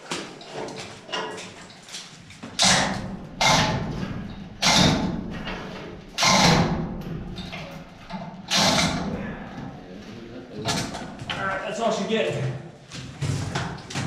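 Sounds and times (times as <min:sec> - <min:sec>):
loud metal clanking hits: 0:02.5 - 0:09.4.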